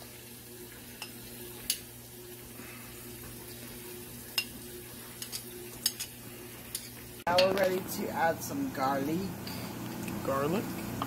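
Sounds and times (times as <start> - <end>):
rice and onion sizzling: 0.0 - 11.0
utensils clicking against pot: 5.2 - 7.8.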